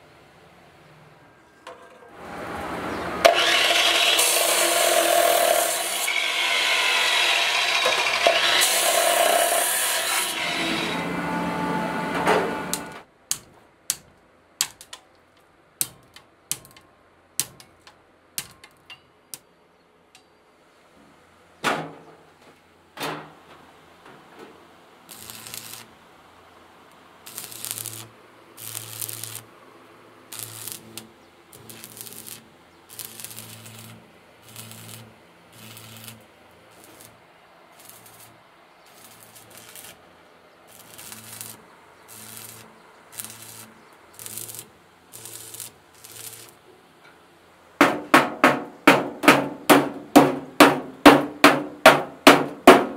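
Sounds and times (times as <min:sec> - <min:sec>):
arc welding crackling hiss: 0:25.0 - 0:26.0, 0:27.2 - 0:29.5, 0:30.3 - 0:40.1, 0:40.7 - 0:46.6
loud knocks: 0:47.8 - 0:52.9.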